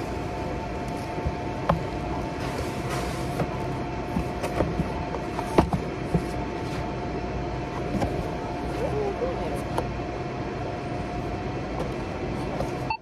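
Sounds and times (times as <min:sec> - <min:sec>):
steady store hum: 0:00.0 - 0:13.0
cardboard box being handled: 0:00.8 - 0:07.0.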